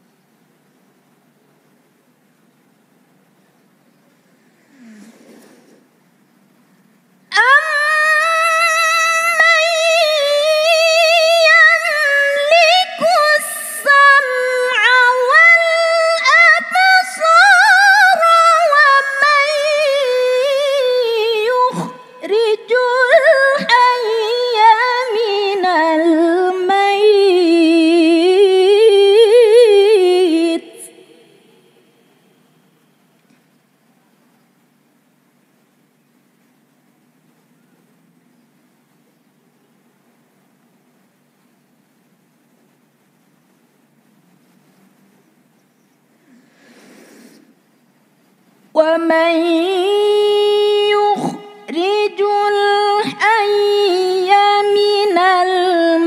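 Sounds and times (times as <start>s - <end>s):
woman reciting melodically: 7.3s - 31.9s, 48.7s - 56.0s.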